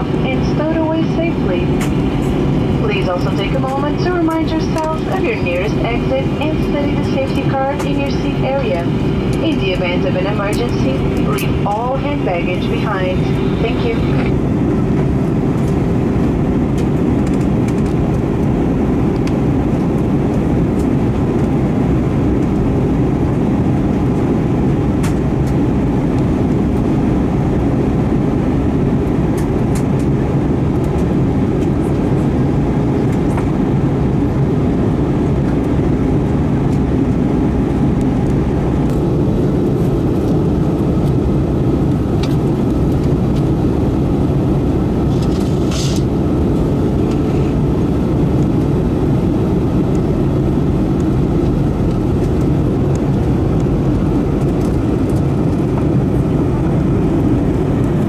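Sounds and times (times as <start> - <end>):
faint steady whine: 0.0 - 16.5
airplane cabin drone: 0.0 - 58.0.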